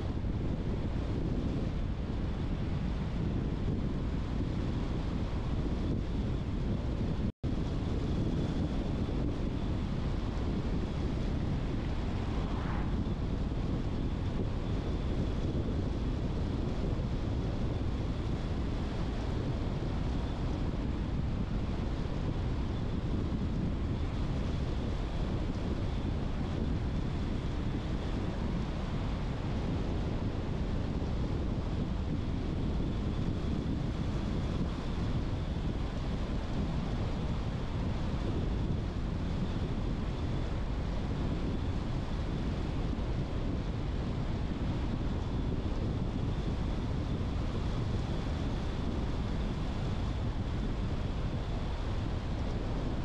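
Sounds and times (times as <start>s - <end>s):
car road noise: 10.1s - 15.0s.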